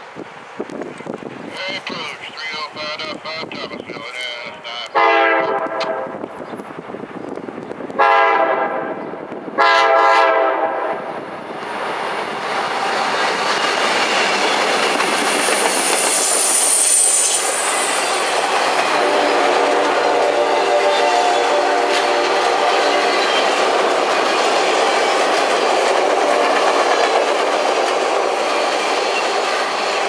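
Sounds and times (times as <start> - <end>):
train cars rumbling by: 0.0 - 30.0
locomotive air horn blasts: 4.8 - 6.2, 8.0 - 9.0, 9.6 - 11.1, 18.9 - 23.2
high wheel squeal: 12.7 - 18.8.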